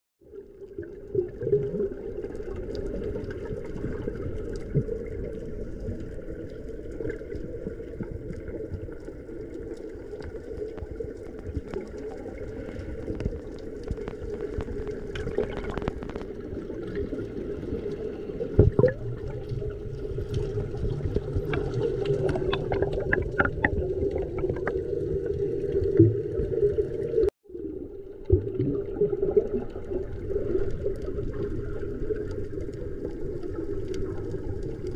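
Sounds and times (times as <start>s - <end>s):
underwater low drone: 0.2s - 34.9s
water bubbling: 0.3s - 34.9s
underwater clicks: 9.6s - 17.1s, 18.5s - 26.5s.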